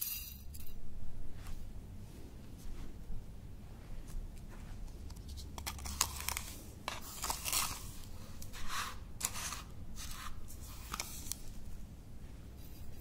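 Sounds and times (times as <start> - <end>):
spoon scraping through powder: 5.6 - 11.3.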